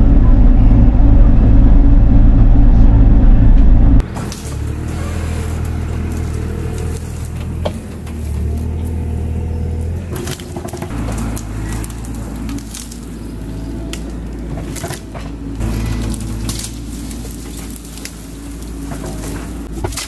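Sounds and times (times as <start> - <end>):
excavator diesel engine running: 0.0 - 20.0
branches cracking and snapping: 4.0 - 20.0.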